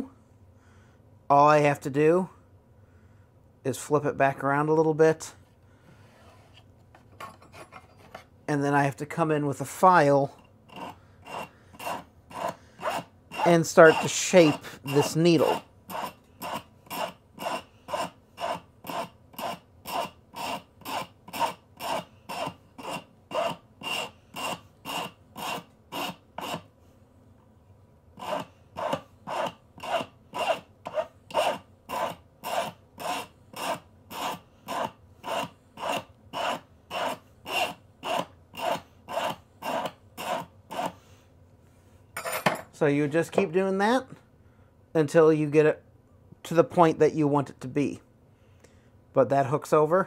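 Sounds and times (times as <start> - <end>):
hand file stroking metal pin: 10.7 - 26.7, 28.2 - 41.0.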